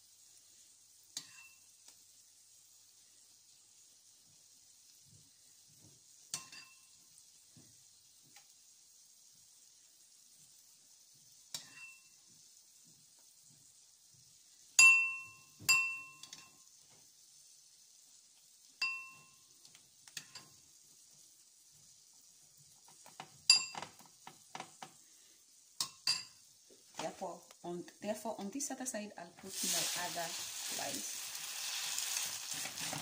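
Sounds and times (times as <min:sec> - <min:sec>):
oil sizzling in a frying pan: 0:00.0 - 0:33.0
spoon tapping and scraping: 0:01.2 - 0:01.6, 0:06.3 - 0:06.9, 0:11.5 - 0:12.1, 0:14.8 - 0:16.6, 0:20.1 - 0:20.6, 0:22.8 - 0:25.0, 0:25.8 - 0:26.4
metal spoon clinking on dish: 0:06.3 - 0:06.8.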